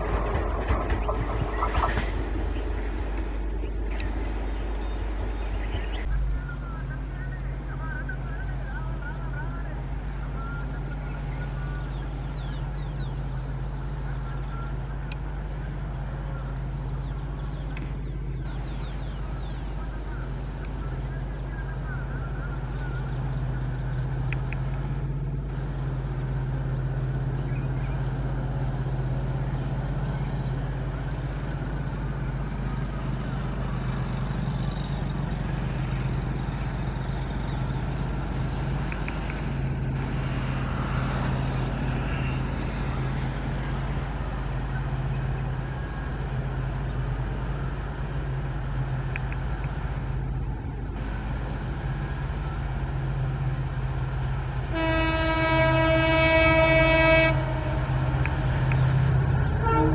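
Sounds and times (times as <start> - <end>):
diesel locomotive engine hum: 0.0 - 59.9
even rumbling noise: 0.0 - 59.9.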